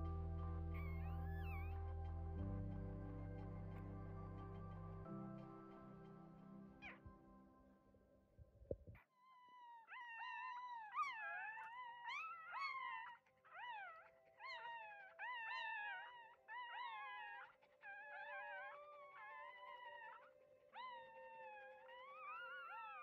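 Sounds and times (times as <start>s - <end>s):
puppy whining: 0.8s - 1.8s, 9.2s - 23.0s.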